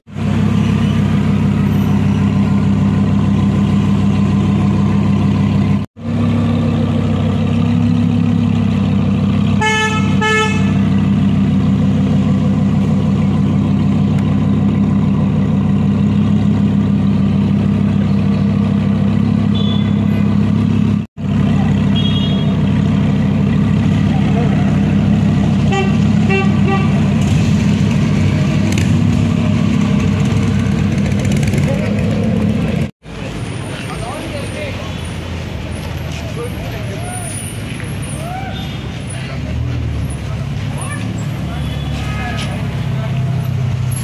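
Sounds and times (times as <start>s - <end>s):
car engine idling: 0.1s - 33.3s
car horn toots: 9.6s - 10.9s, 19.5s - 20.2s, 21.9s - 22.6s, 25.7s - 27.0s.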